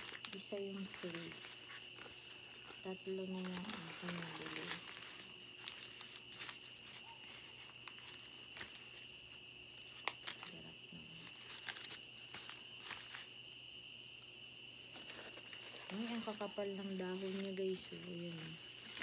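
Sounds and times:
crickets trilling: 0.0 - 19.0
plants and packaging rustling: 0.0 - 19.0.

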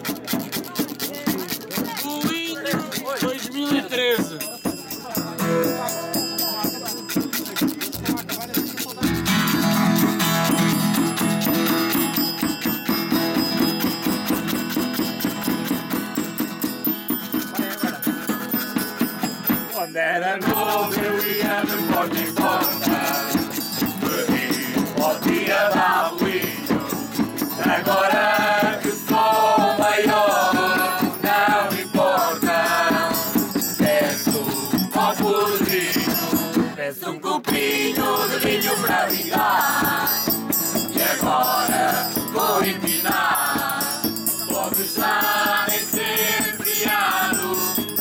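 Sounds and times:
shaken rattle: 0.0 - 4.6, 6.6 - 19.1
acoustic guitar: 0.0 - 36.8, 37.4 - 48.0
group singing in chorus: 19.8 - 48.0.

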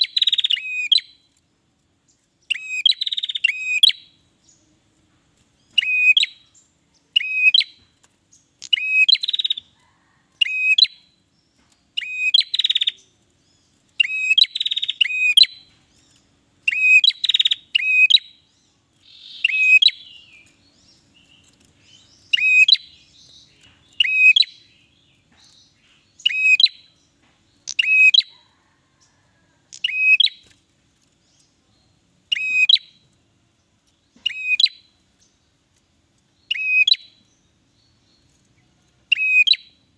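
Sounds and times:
bird calling sharp ringing notes: 5.8 - 6.6, 14.0 - 15.7, 16.7 - 18.5, 19.1 - 20.5, 23.9 - 24.9, 27.7 - 28.3, 29.7 - 30.4, 32.3 - 33.0, 34.2 - 35.0, 36.4 - 37.2, 39.1 - 39.8.

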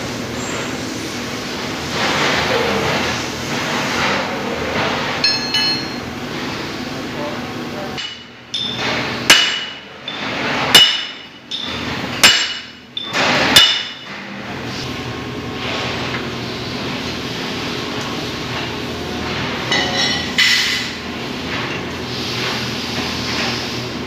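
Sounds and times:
steel striking steel: 5.2 - 6.0, 10.7 - 14.0.

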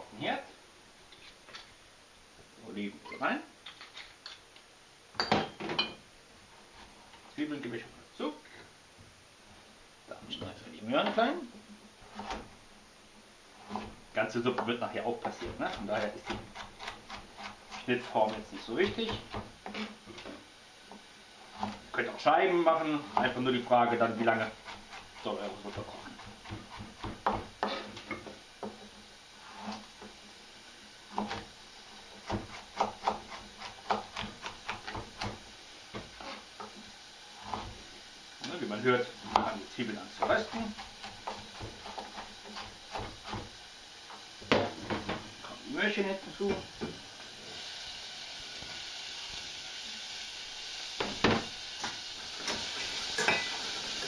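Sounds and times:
vegetables sizzling in oil: 0.0 - 54.0
knife chopping on cutting board: 14.6 - 17.6, 18.2 - 19.5, 25.7 - 27.9, 32.2 - 35.4, 37.4 - 37.8, 40.2 - 43.5.

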